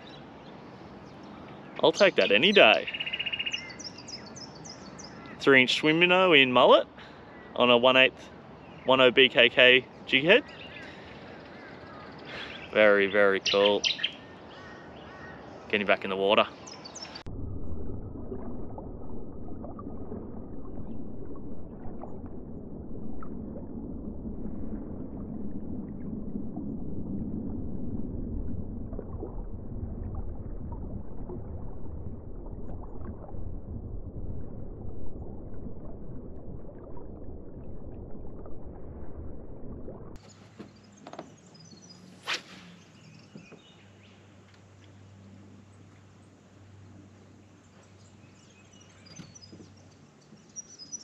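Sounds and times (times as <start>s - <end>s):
underwater rumble and slosh: 16.9s - 42.2s
short sharp sounds: 42.2s - 43.0s.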